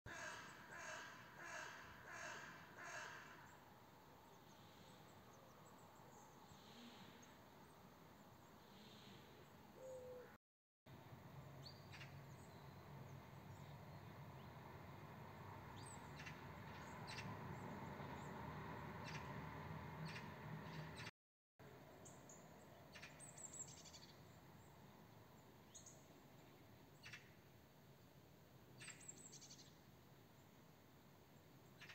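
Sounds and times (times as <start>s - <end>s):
bird harsh cries: 0.1s - 3.6s.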